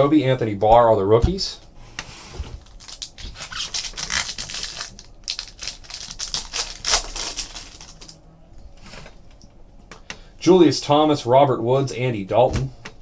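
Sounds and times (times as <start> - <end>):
foil wrapper crinkling and tearing: 2.6 - 8.2.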